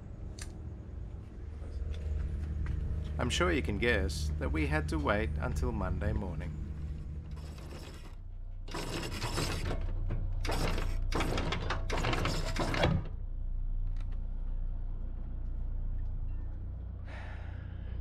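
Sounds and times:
steady low rumble: 0:00.0 - 0:08.7, 0:13.1 - 0:18.0.

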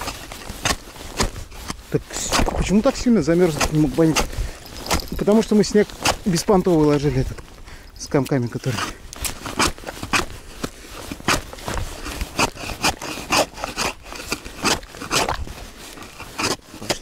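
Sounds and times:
ice chisel chopping ice: 0:03.4 - 0:04.3, 0:12.2 - 0:15.4, 0:16.1 - 0:17.0.

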